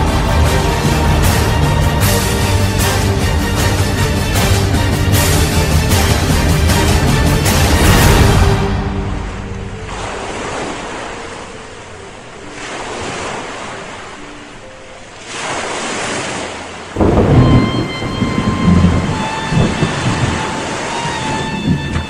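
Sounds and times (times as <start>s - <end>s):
ocean waves surging: 0.0s - 22.0s
low thunder-like rumble: 17.0s - 22.0s.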